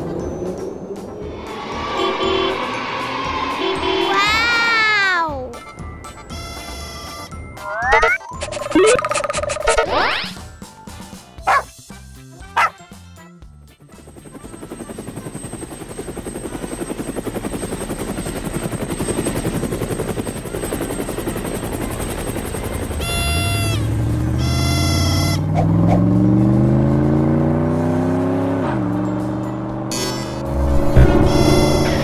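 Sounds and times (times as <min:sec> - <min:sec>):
short horn-like beeps: 0:02.0 - 0:02.8, 0:06.3 - 0:07.3, 0:23.0 - 0:25.5, 0:29.9 - 0:32.0
cartoon helicopter rotor chopping: 0:07.6 - 0:10.4, 0:14.0 - 0:26.8, 0:29.9 - 0:32.0
vehicle engine revving: 0:23.2 - 0:32.0.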